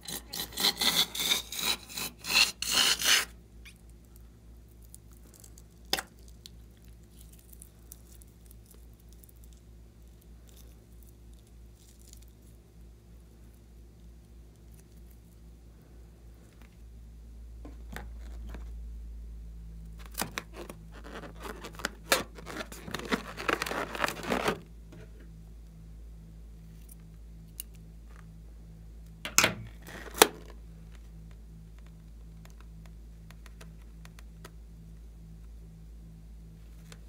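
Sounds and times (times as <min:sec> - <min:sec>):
low steady hum: 0:00.0 - 0:37.0
crackly handling noise: 0:17.6 - 0:18.8, 0:19.8 - 0:25.4, 0:29.1 - 0:35.5.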